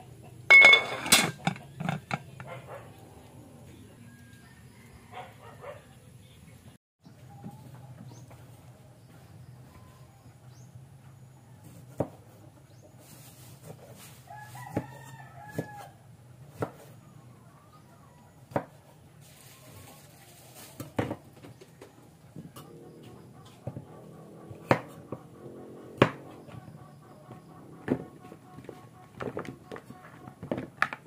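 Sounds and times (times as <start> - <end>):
rooster crowing: 4.0 - 5.7, 14.3 - 16.1.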